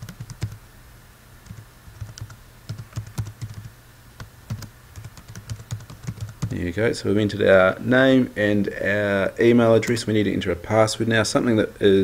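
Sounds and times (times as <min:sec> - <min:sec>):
computer keyboard typing: 0:00.0 - 0:00.6, 0:01.4 - 0:06.6.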